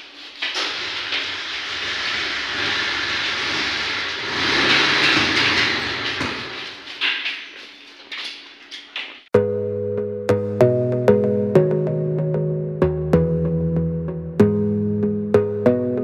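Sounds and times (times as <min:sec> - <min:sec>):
metal gate rattling on track: 0:00.3 - 0:08.0.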